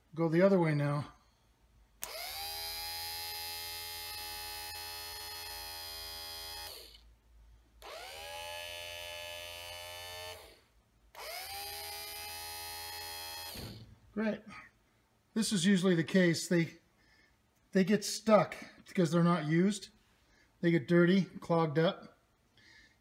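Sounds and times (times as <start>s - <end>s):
power window motor whine: 11.5s - 13.9s.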